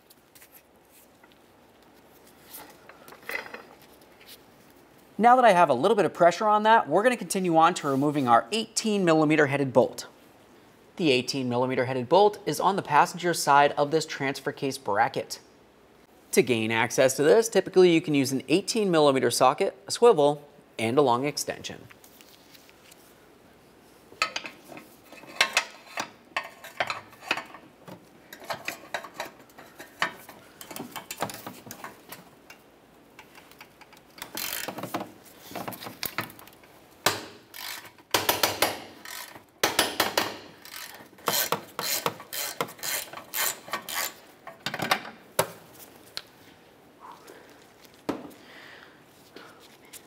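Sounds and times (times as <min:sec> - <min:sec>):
hand ratchet clicking: 0:33.2 - 0:35.0, 0:37.1 - 0:44.2.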